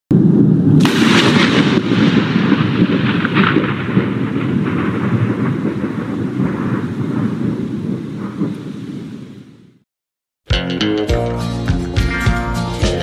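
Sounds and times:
thunder rumbling: 0:00.1 - 0:09.8
rain: 0:00.2 - 0:09.8.

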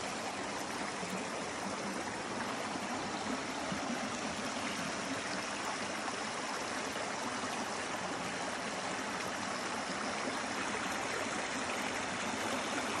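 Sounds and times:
stream running over stones: 0:00.0 - 0:13.0.

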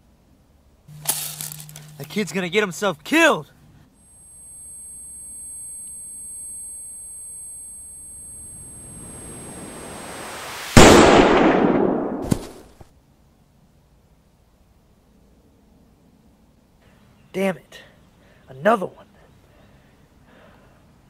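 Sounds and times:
faint high steady tone: 0:00.9 - 0:10.8
rushing noise: 0:08.8 - 0:12.6
loud explosion: 0:10.2 - 0:12.6.

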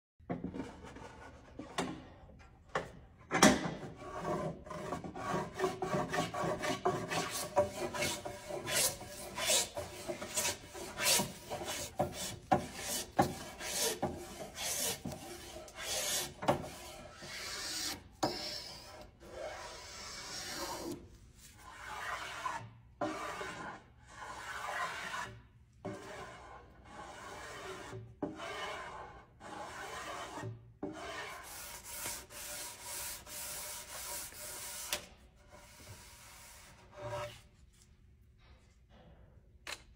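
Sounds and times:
spokeshave rasping on wood: 0:04.0 - 0:21.0.

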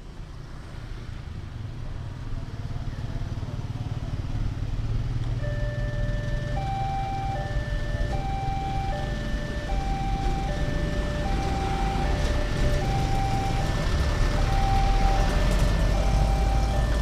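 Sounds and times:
motorcycles and cars passing: 0:00.0 - 0:17.0
two-note crossing warning alarm: 0:05.4 - 0:17.0.

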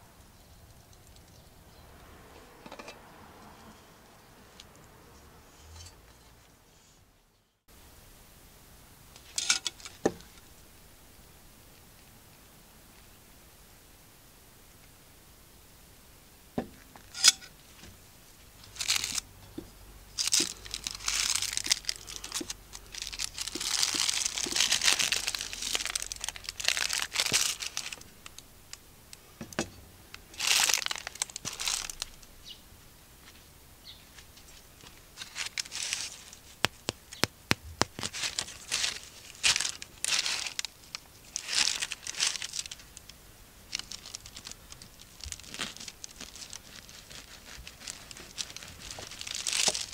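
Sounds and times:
baking paper crinkling: 0:18.6 - 0:19.3, 0:20.2 - 0:28.8, 0:30.2 - 0:32.2, 0:34.2 - 0:49.9.

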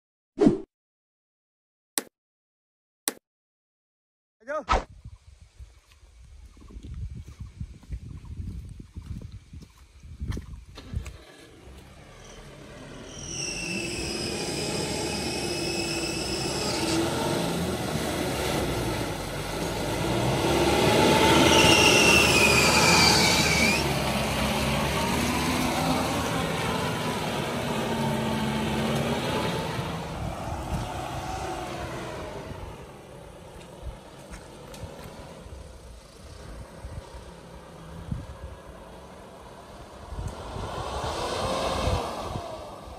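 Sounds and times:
diesel engine revving: 0:10.8 - 0:42.9.

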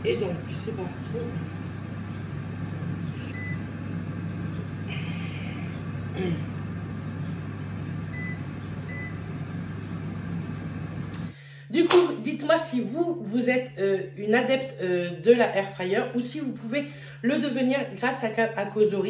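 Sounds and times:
air fryer fan humming: 0:00.0 - 0:19.0.

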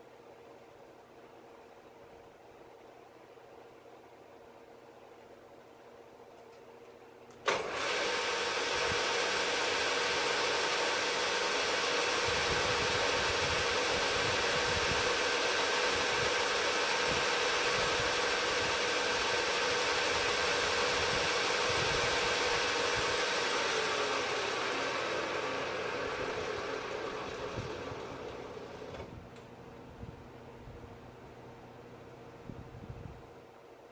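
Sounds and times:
mill motor humming and whining: 0:07.5 - 0:29.1.

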